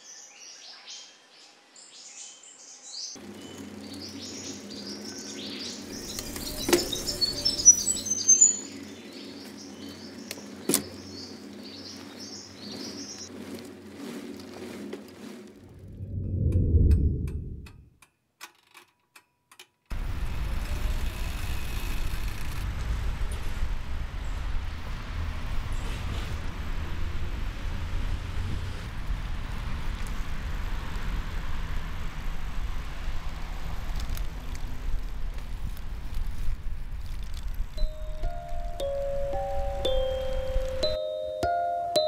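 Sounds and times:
road and wind noise: 3.1 - 18.0, 19.9 - 42.0
bicycle rumbling on pavement: 3.2 - 17.6, 19.9 - 41.2
low whoosh: 15.6 - 17.9.

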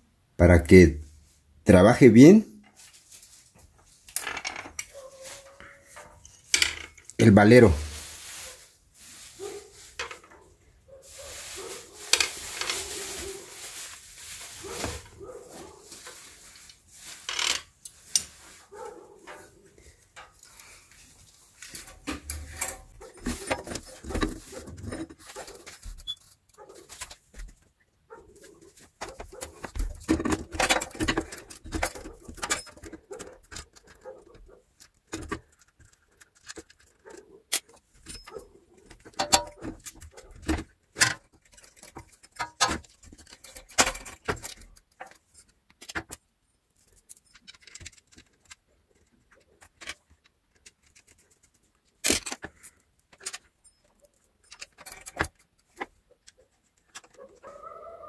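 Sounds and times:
metallic clicks clinks and scrapes: 16.7 - 18.6, 19.2 - 27.1, 29.0 - 57.3.

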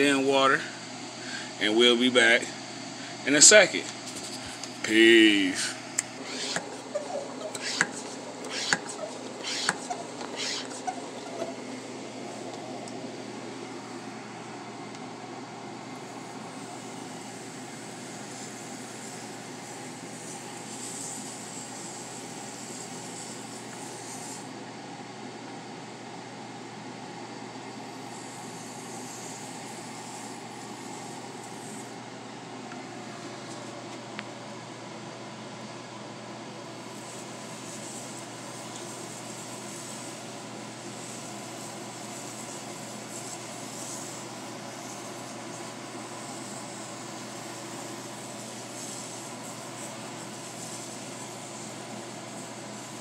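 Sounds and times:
steady low hum: 0.0 - 53.0
short air hisses: 6.2 - 11.5.

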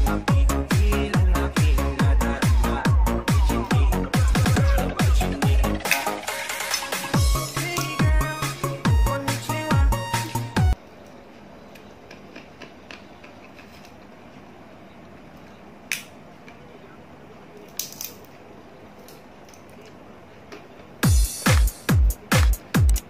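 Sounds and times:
electronic dance beat: 0.0 - 10.8, 21.0 - 23.0
faint room noise: 10.7 - 21.0
seed shells cracking: 17.6 - 18.4.

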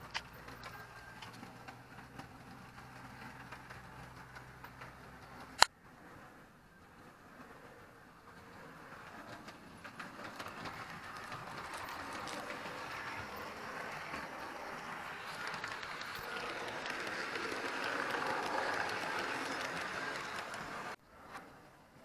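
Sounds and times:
wheel clicks on rail joints: 0.0 - 5.7, 8.3 - 21.0
model train whirring: 0.0 - 21.0.

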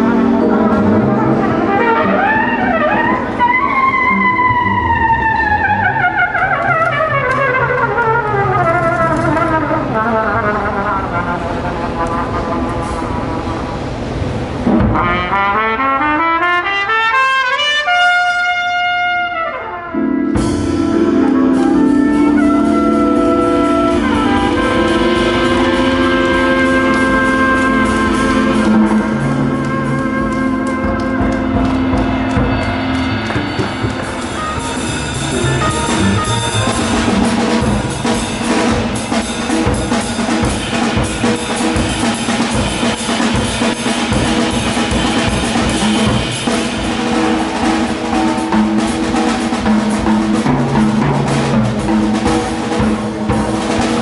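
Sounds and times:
keyboard: 0.0 - 6.4, 19.4 - 54.0
trumpet phrase: 0.0 - 13.6, 15.0 - 33.5, 34.1 - 37.7
drum kit with cymbals: 20.0 - 54.0
upright bass: 20.1 - 39.0.

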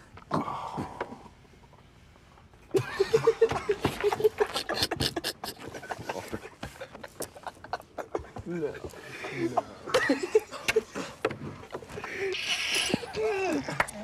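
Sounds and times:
men snickering and giggling: 2.7 - 14.0.

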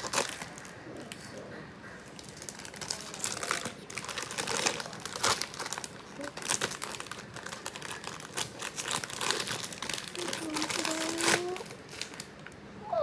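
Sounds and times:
foil bag crinkling: 0.0 - 12.6.

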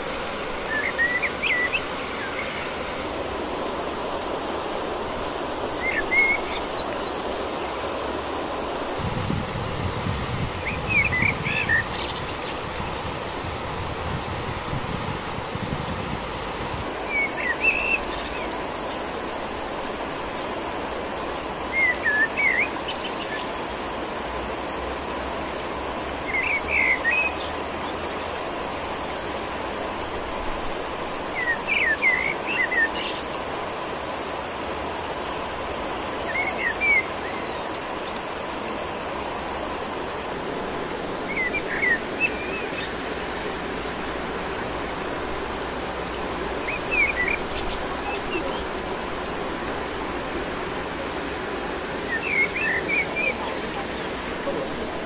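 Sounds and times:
faint high-pitched whine: 0.0 - 55.0
outdoor hiss: 0.0 - 55.0
bird call phrases: 46.6 - 48.8, 52.0 - 55.0.

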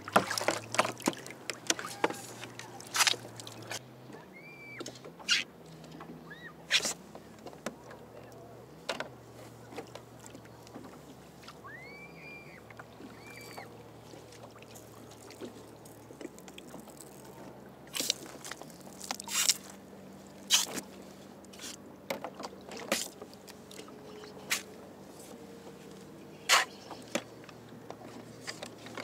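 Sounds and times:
water splashes: 0.0 - 8.4, 9.4 - 21.8
whistle-like tones: 11.6 - 12.6.

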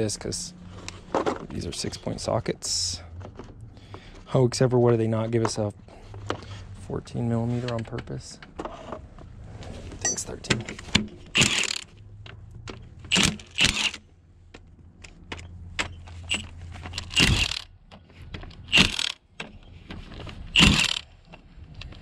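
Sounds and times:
metal clinks of sockets and tools: 10.0 - 10.4
impact wrench bursts: 11.3 - 11.9, 13.1 - 14.0, 16.2 - 17.7, 18.6 - 19.2, 20.6 - 21.0.

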